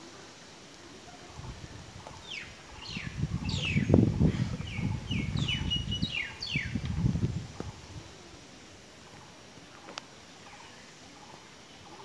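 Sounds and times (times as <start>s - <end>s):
low rumble on microphone: 2.8s - 8.2s
bird whistling song: 4.6s - 6.8s.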